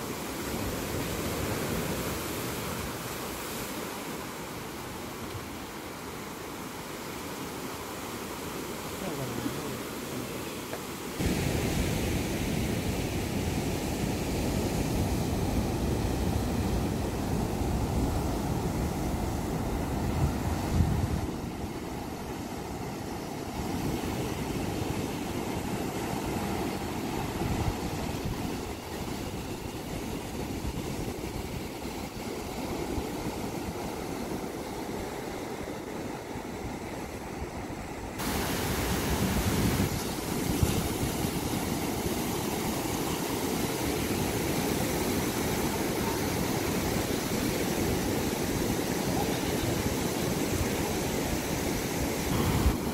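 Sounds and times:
ocean surf breaking: 0.0 - 52.9
wind on microphone: 11.2 - 35.2, 38.2 - 52.9.

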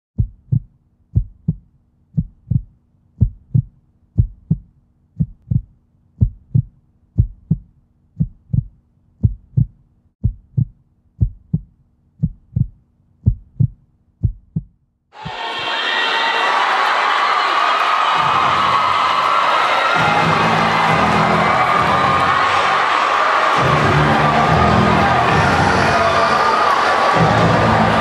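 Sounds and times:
heartbeat thumps: 0.2 - 15.4.

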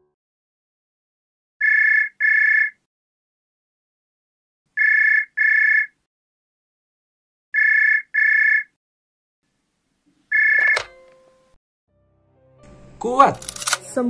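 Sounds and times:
telephone ringing: 1.6 - 2.8, 4.8 - 6.0, 7.6 - 8.7, 10.3 - 11.6
sharp click: 13.4 - 13.8.

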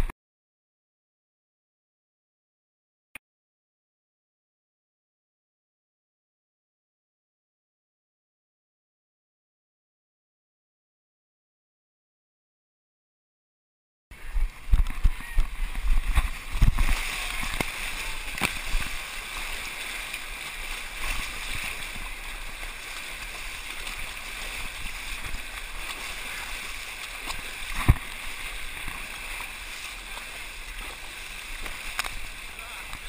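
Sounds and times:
mud water sloshing and splashing: 14.4 - 33.0.

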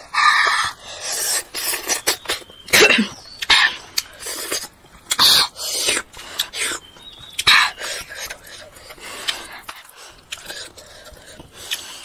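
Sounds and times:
boy coughing: 2.7 - 3.2.

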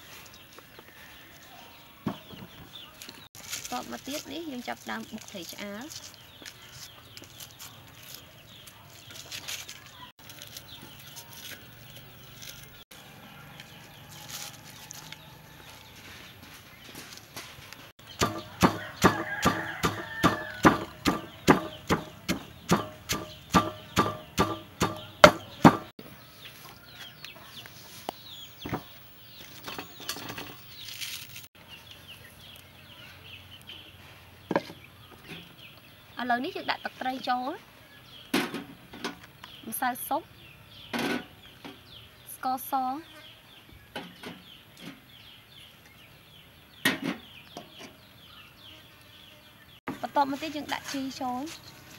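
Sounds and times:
wooden pestle pounding in mortar: 18.1 - 25.9.

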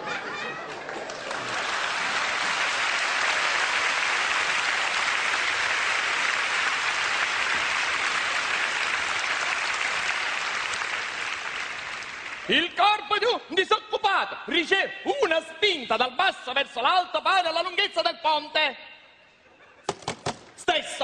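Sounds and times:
large audience applauding: 0.0 - 12.8.

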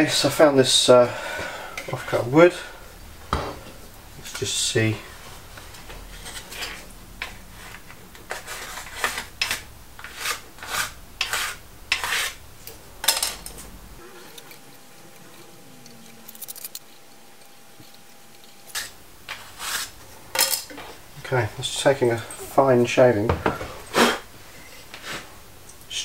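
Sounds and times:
plane scraping wood: 4.2 - 12.4.

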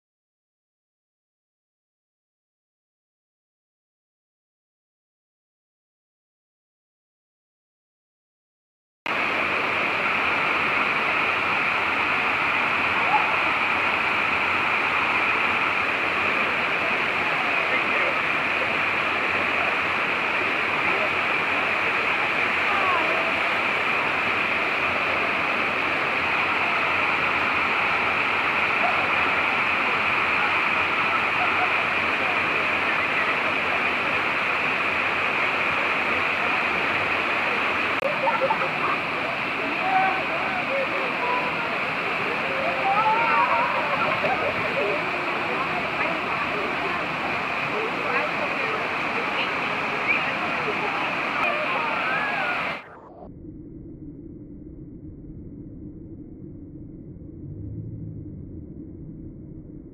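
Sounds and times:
rushing waterfall: 9.1 - 53.1.

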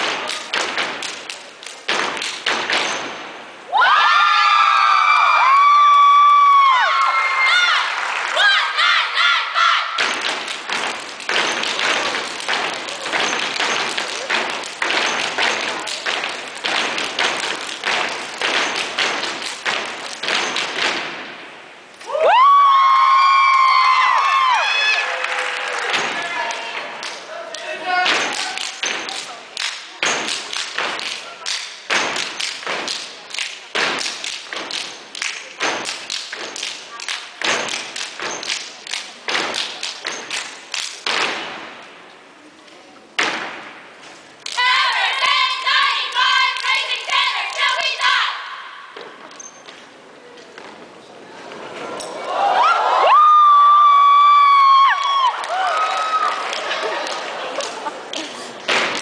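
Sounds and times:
group stomping and clapping: 0.0 - 3.2, 10.0 - 21.4, 25.2 - 27.2, 28.0 - 41.9, 43.2 - 48.2, 54.4 - 59.0.

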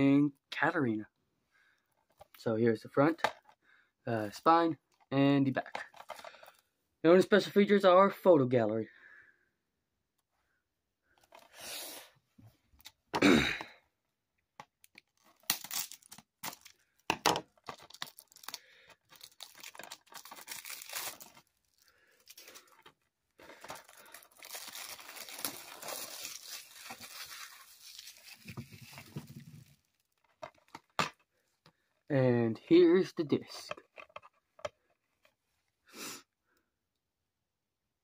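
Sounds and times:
plastic shrink-wrap tearing: 15.1 - 16.8, 17.7 - 22.8, 23.5 - 30.1.

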